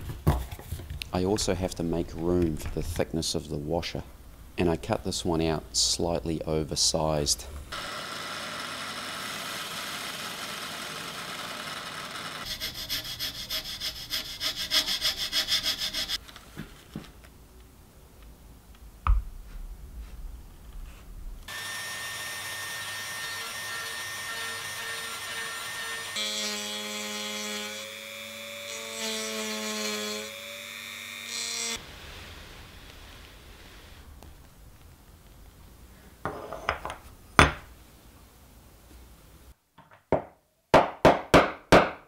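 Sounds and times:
drill bit boring into wood: 7.7 - 12.5
router whirring: 7.7 - 12.5, 21.5 - 31.8
rotary tool whining: 7.7 - 13.0.

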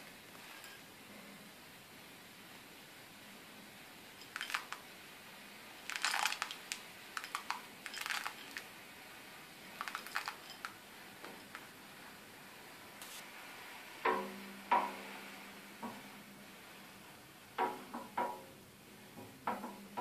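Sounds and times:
pellets rattling off a plate: 4.3 - 4.8, 5.9 - 8.7, 9.8 - 10.8.

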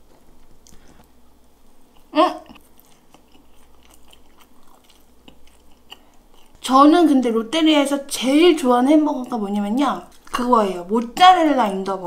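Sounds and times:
chewing fries: 0.0 - 12.0
wet mouth clicks: 1.9 - 6.6.

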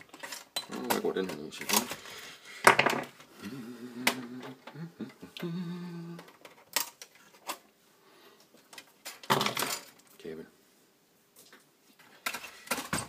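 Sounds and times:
person humming: 3.3 - 6.4.

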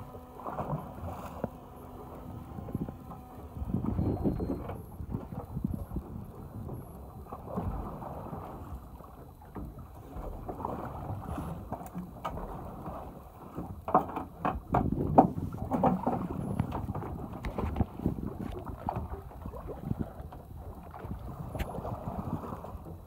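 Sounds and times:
boat bumps: 0.0 - 23.0
water washing against hull: 0.0 - 23.0
wind buffeting microphone: 2.4 - 8.4, 14.6 - 22.7.

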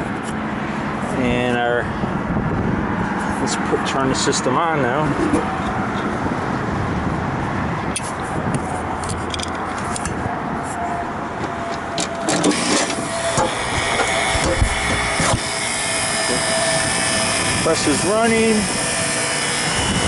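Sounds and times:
compressor humming: 9.6 - 20.0.

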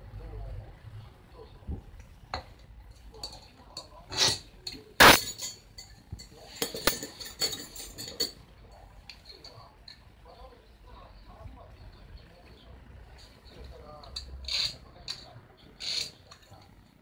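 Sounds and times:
metal tools clinking together: 3.2 - 8.4.

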